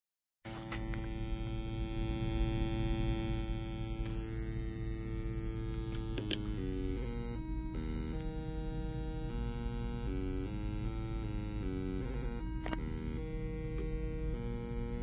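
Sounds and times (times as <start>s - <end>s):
synthesizer droning tone: 0.5s - 15.0s
clicks: 5.9s - 6.6s.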